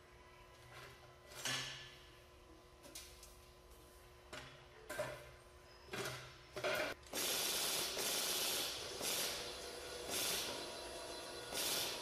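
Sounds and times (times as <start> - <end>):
machine hissing running noise: 7.0 - 12.0.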